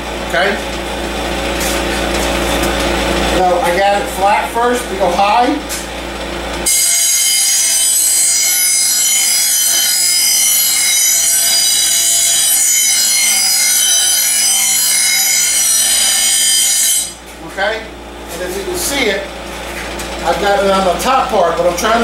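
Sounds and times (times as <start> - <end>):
bench grinder grinding metal blade: 6.6 - 17.2.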